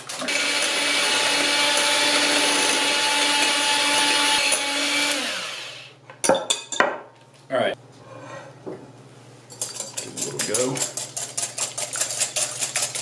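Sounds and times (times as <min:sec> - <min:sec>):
electric hand mixer running: 0:00.1 - 0:06.0.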